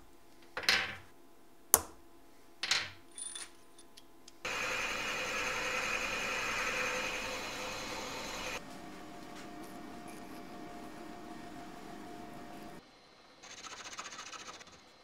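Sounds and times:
milling machine drilling brass: 0:04.5 - 0:08.6.

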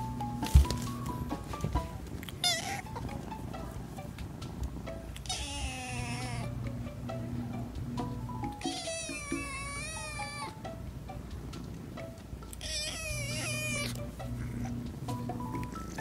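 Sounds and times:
background music: 0:00.0 - 0:16.0
kitten meowing: 0:02.3 - 0:03.0, 0:05.2 - 0:06.5, 0:08.6 - 0:10.6, 0:12.6 - 0:14.7.

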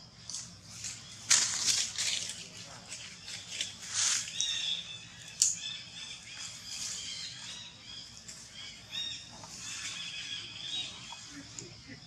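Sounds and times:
feet rustling dry leaves: 0:00.7 - 0:04.9
high chirping animal calls: 0:03.1 - 0:12.0.

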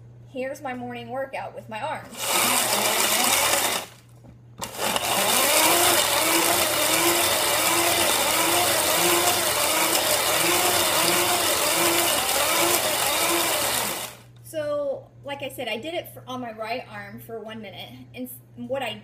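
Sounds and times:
hand-crank blender whirring: 0:02.1 - 0:04.0, 0:04.6 - 0:14.3.

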